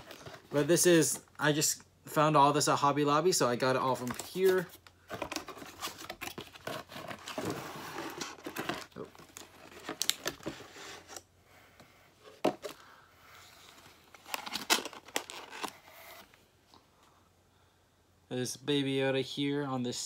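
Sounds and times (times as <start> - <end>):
packaging crinkling and rustling: 4.0 - 11.2, 13.6 - 15.8.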